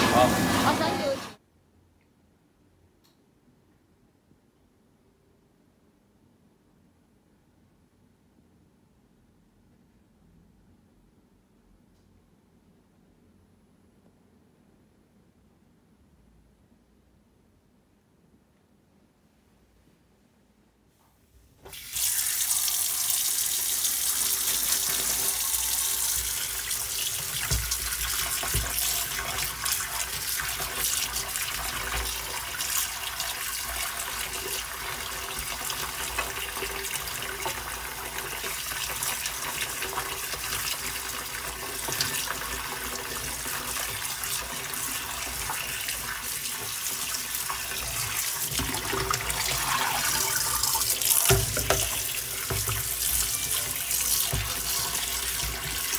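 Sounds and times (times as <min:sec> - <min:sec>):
fish rinsed by hand: 0:21.7 - 0:55.9
tap running into steel sink: 0:27.1 - 0:29.3, 0:48.5 - 0:55.9.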